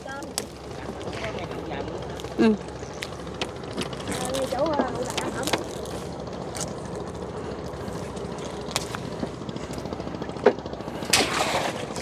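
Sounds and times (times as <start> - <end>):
small boat engine chugging: 0.0 - 12.0.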